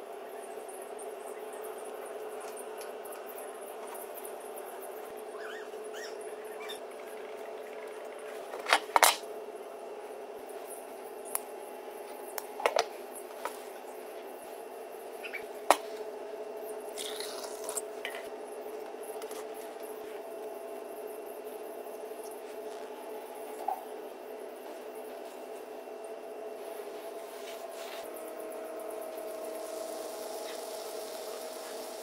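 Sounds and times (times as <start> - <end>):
steady hum: 0.0 - 32.0.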